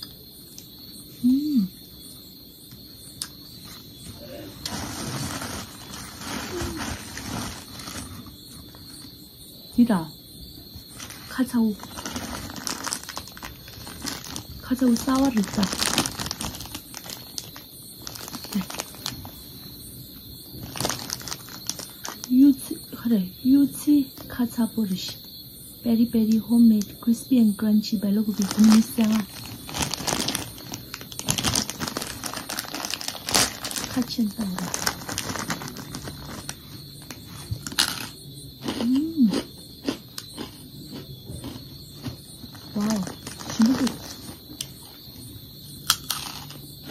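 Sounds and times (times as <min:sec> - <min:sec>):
person humming mmm: 0:01.2 - 0:01.7
crunching of fried snack: 0:03.2 - 0:09.0, 0:10.8 - 0:22.4, 0:28.3 - 0:45.1, 0:45.8 - 0:46.9
plastic bag crinkling: 0:04.6 - 0:09.0, 0:10.9 - 0:22.4, 0:28.2 - 0:38.1, 0:42.4 - 0:44.6.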